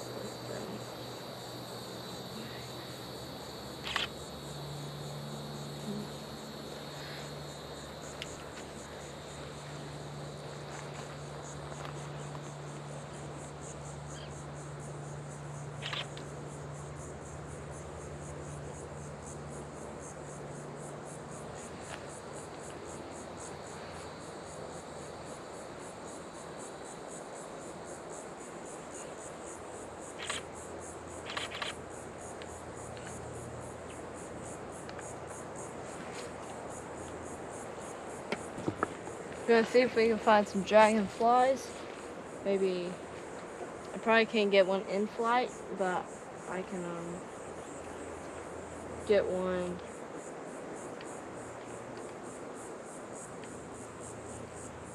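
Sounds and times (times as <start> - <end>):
insects trilling: 0.0 - 54.9
camera shutter clicks: 3.8 - 4.1, 31.3 - 31.8.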